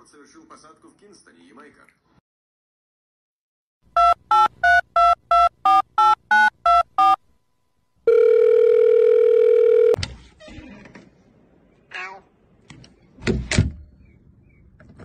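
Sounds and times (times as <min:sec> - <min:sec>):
touch-tone keypad beeps: 0:04.0 - 0:07.2
steady phone tone: 0:08.0 - 0:10.0.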